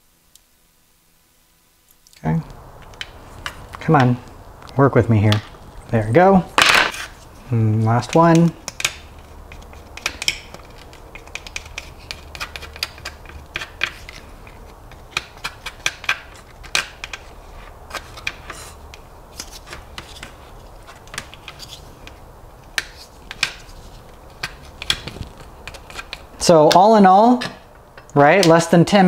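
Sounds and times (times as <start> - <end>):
wooden stick scraping metal: 6.6 - 7.3.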